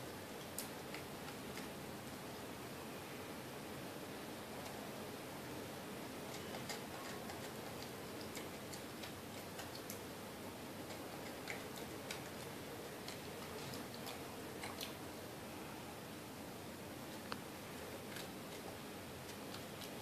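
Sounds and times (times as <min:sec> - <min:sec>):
monkey chewing crunchy biscuit: 0:06.3 - 0:10.1, 0:10.8 - 0:15.0.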